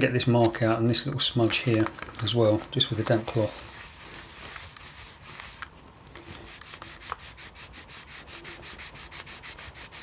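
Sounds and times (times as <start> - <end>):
cloth rubbing on plastic: 2.5 - 10.0.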